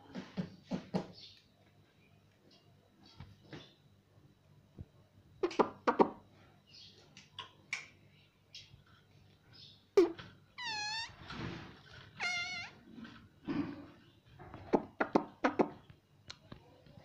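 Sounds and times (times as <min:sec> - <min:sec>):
parakeet drawn-out calls: 0:10.6 - 0:11.2, 0:12.2 - 0:12.8.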